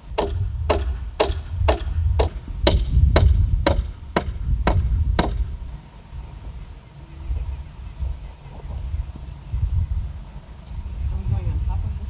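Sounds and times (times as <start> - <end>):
hammer driving nail into wood: 0.2 - 5.5.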